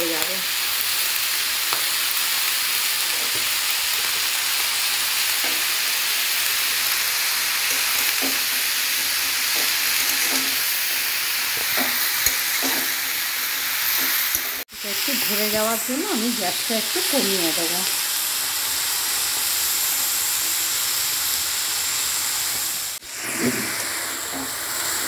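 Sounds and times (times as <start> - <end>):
vegetables sizzling in pan: 0.0 - 25.0
metal spatula scraping pan: 9.5 - 10.7.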